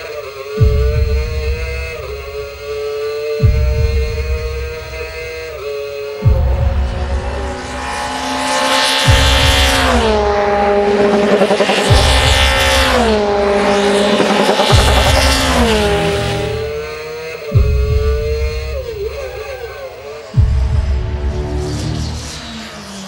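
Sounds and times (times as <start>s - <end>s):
race car engine: 0.0s - 23.0s
deep thud: 3.4s - 5.3s, 6.2s - 7.9s, 9.1s - 16.8s.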